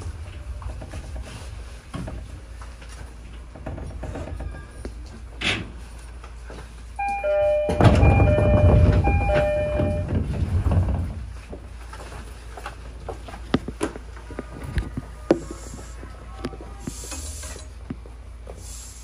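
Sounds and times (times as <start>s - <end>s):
train rumble: 0.0s - 19.0s
electronic two-note door chime: 7.0s - 10.1s.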